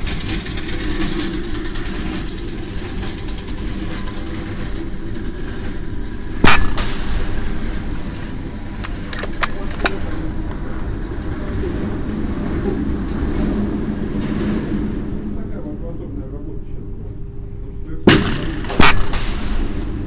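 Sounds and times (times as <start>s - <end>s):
steady low rumble: 0.0s - 20.0s
air rifle shot: 6.4s - 7.8s, 18.1s - 20.0s
metallic clicks of rifle action: 8.8s - 10.0s.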